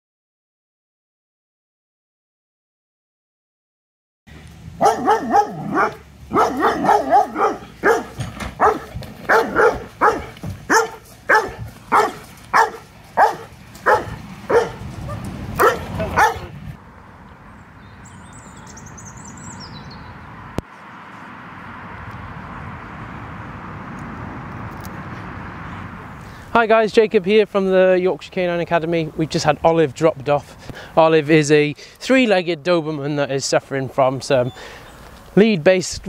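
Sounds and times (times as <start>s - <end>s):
outdoor background noise: 4.3s - 36.0s
dog barking: 4.8s - 16.5s.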